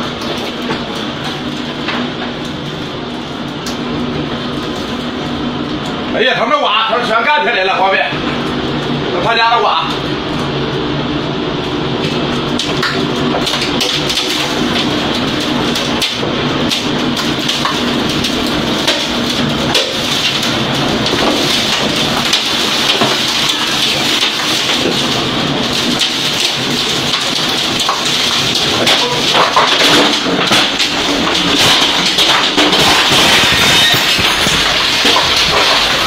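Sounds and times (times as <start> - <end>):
rain and debris tapping glass: 0.0 - 6.0, 11.9 - 36.0
wind and heavy rain rushing: 10.0 - 36.0.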